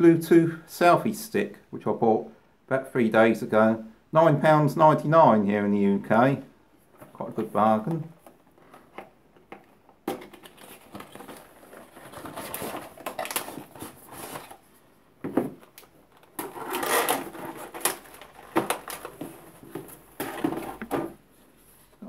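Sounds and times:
plastic tray rustling and scraping: 6.9 - 22.0
cardboard box being opened: 10.2 - 14.6.

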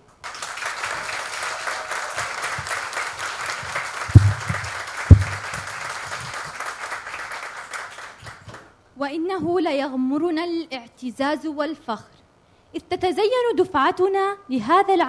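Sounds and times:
audience applauding: 0.2 - 8.7
loud low thumps: 4.1 - 5.7.

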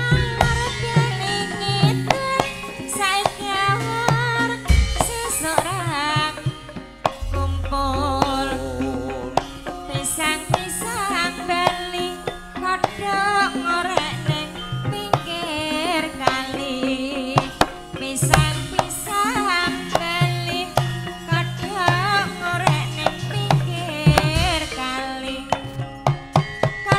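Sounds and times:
low pulsing gamelan notes: 0.0 - 26.9
kendang drum strokes: 4.0 - 13.1
wavering female vocal line: 7.2 - 25.6.

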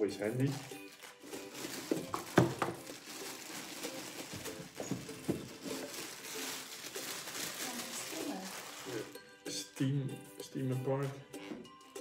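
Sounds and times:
plastic packaging rustling: 0.2 - 9.2.

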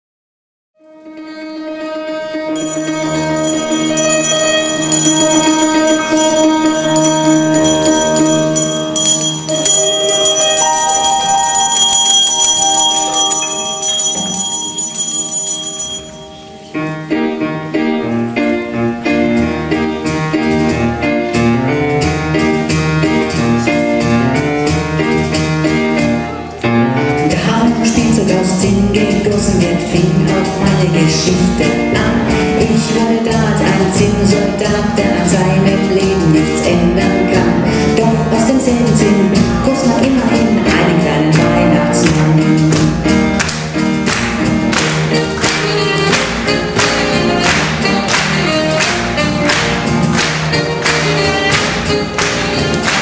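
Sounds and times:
saxophone: 0.8 - 9.0, 44.6 - 53.0
piano: 0.8 - 53.0
hand percussion: 2.6 - 16.4, 27.3 - 53.0
double bass: 16.8 - 53.0
woman singing: 27.2 - 42.7.

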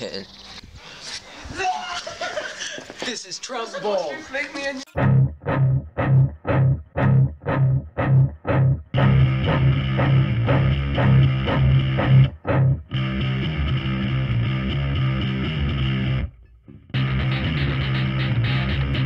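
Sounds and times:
rock music with guitar chords: 9.0 - 19.0.

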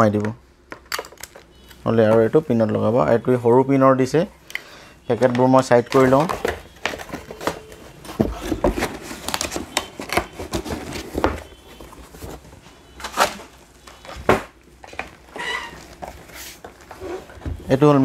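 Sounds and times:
cardboard box rustling and scraping: 6.2 - 13.4.

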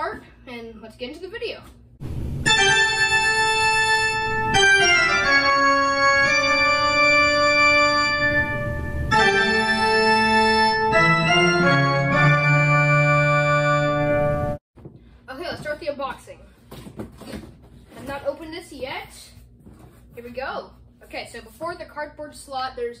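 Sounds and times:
organ chords: 2.0 - 14.6.

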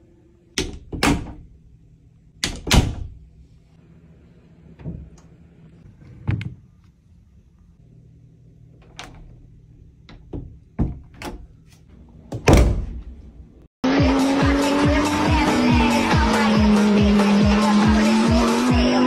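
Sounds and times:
door latches clicking and knocking: 0.6 - 1.4, 2.4 - 3.1, 10.1 - 11.5
door shutting thud: 12.3 - 13.0
loud music: 13.8 - 19.0
sports car engine: 13.8 - 19.0.

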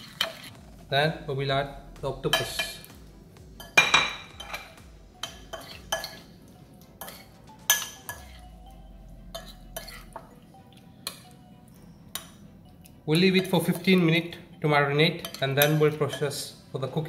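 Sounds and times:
metal spoon clinking on ceramic bowl: 2.3 - 2.9, 3.6 - 6.2, 7.0 - 8.4, 9.3 - 10.3, 12.1 - 12.4, 15.2 - 16.4.

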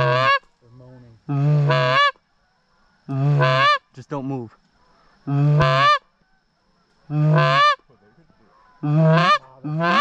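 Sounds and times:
goose call honks: 0.0 - 0.4, 1.3 - 2.2, 3.1 - 3.8, 5.3 - 6.0, 7.1 - 7.8, 8.5 - 10.0.

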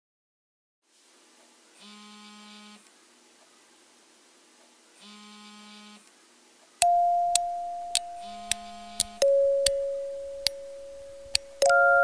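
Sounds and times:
sharp clicks: 6.8 - 11.8
alarm buzzing: 6.8 - 12.0.

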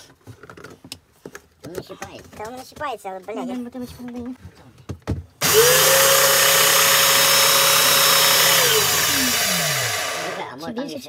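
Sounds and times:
paint sprayer motor and pump: 5.4 - 10.5.

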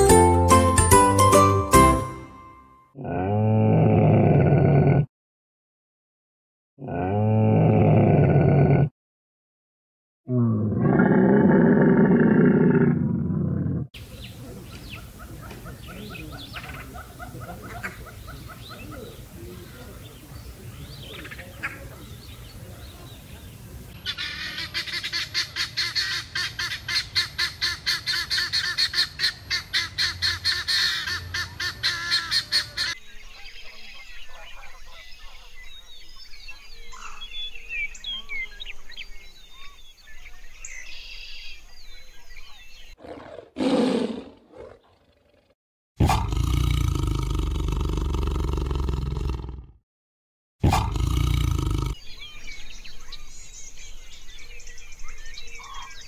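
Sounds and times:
tiger roaring: 3.0 - 5.1, 6.8 - 8.9, 10.3 - 13.9, 43.0 - 49.8, 50.6 - 52.0
small birds chirping: 14.0 - 27.3, 30.5 - 43.4, 50.8 - 56.0
repeated animal calls: 14.8 - 19.2, 43.0 - 49.8, 50.6 - 52.1.

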